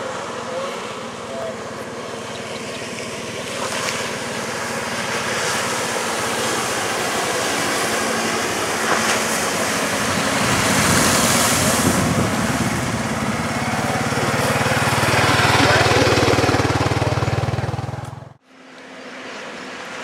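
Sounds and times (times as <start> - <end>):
boat engine running: 0.0 - 20.0
rushing hiss of wake: 3.1 - 15.5.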